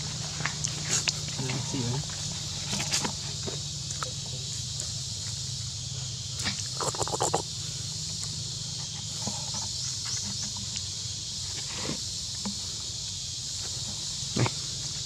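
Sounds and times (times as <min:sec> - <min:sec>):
rustling in dry leaves: 0:00.0 - 0:03.8
high-pitched background hiss: 0:00.0 - 0:15.0.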